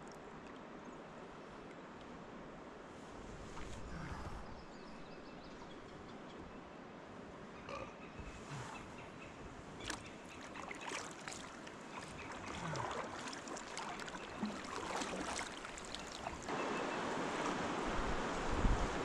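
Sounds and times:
river current flowing: 0:08.4 - 0:19.0
paddle splashing in water: 0:09.7 - 0:18.3.

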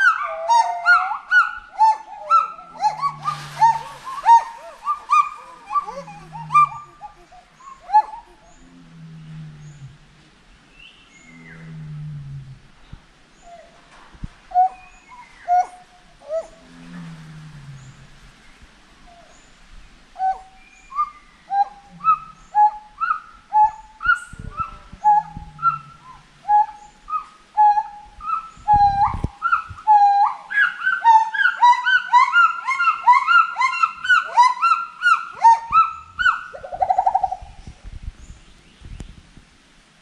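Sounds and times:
higher gibbon voice: 0:00.0 - 0:09.0, 0:21.5 - 0:37.4
gibbons whooping: 0:01.8 - 0:08.6, 0:28.8 - 0:37.0.

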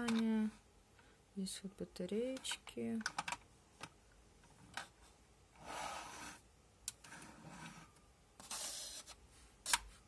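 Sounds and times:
plastic clicks: 0:02.3 - 0:04.0.

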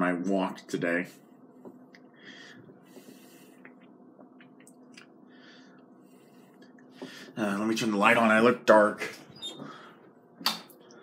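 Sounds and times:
faint steady hum: 0:00.0 - 0:11.0
soft breaths: 0:01.0 - 0:03.9, 0:05.2 - 0:07.4, 0:09.4 - 0:10.2.

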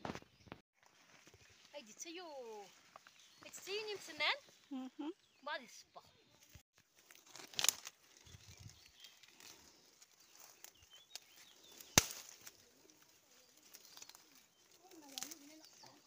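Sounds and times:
rustling of grass and undergrowth: 0:00.0 - 0:04.8, 0:05.4 - 0:16.0
twigs snapping: 0:06.8 - 0:16.0.

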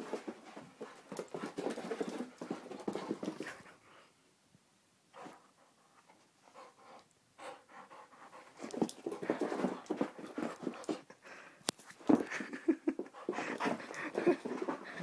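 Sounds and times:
dog panting: 0:05.2 - 0:11.5, 0:12.1 - 0:15.0.

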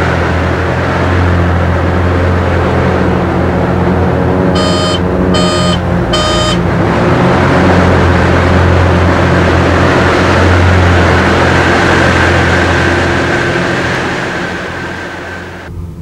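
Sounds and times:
propeller plane engine in flight: 0:00.0 - 0:16.0
short beeps: 0:04.6 - 0:06.6.

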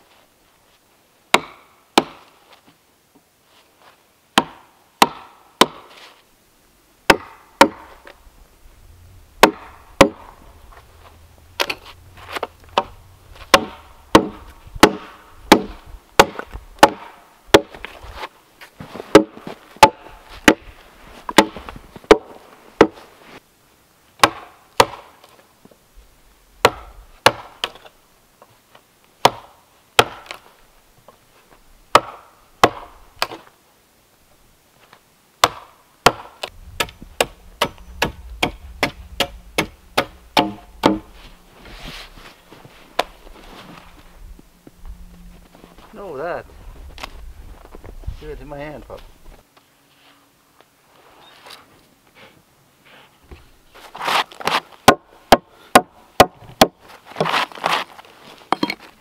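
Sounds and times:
mallet striking chisel: 0:36.8 - 0:41.1.

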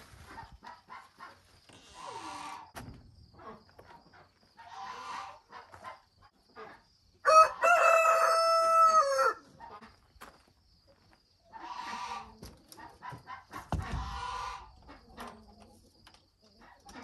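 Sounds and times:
rooster crowing: 0:07.2 - 0:09.5.

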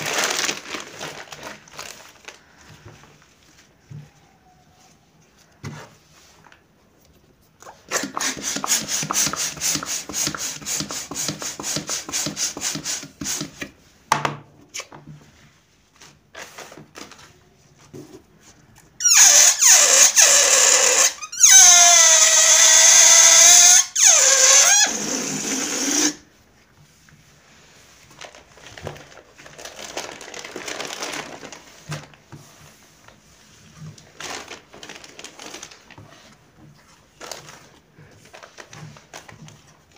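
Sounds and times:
rustling of latex balloons: 0:00.0 - 0:14.1, 0:14.8 - 0:39.9
pump inflating balloon: 0:07.9 - 0:13.7, 0:19.0 - 0:26.2
balloon neck squealing: 0:19.0 - 0:26.2.

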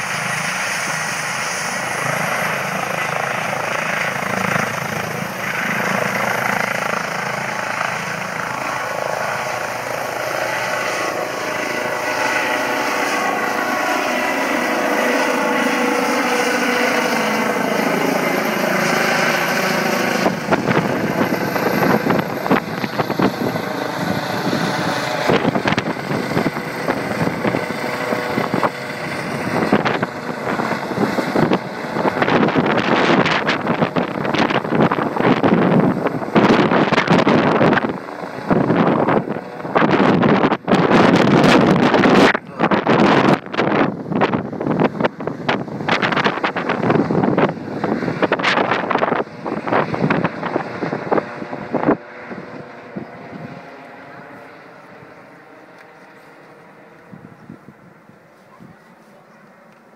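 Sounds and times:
helicopter turbines and rotor: 0:00.0 - 0:59.9
rotor downwash wind noise: 0:00.0 - 0:59.9.

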